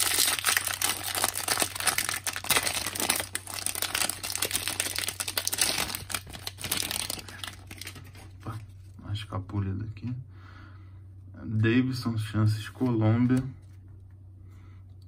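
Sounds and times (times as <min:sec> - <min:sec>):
plastic wrapper crinkling and tearing: 0:00.0 - 0:08.6.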